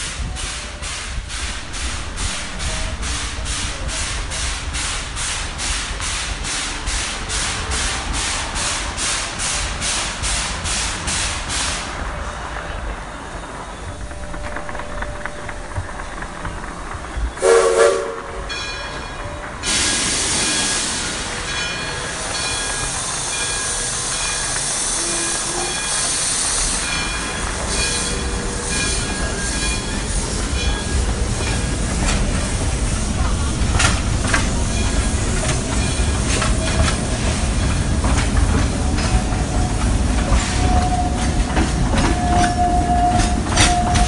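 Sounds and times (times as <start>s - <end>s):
model train wheels rumbling: 0.0s - 11.8s, 26.4s - 44.0s
hiss: 0.0s - 12.1s, 19.6s - 21.6s, 22.2s - 28.0s
locomotive horn blast: 17.4s - 18.5s.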